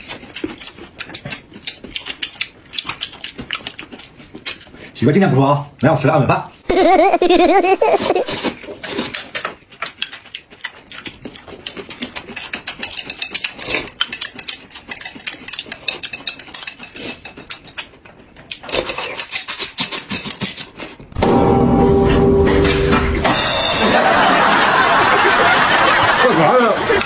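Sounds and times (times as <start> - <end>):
noodles slurped and chewed: 0.0 - 5.1, 8.3 - 21.1.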